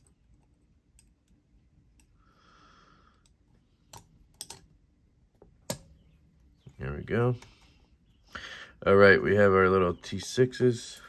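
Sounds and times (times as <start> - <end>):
small parts clicking on a tray: 3.2 - 4.7.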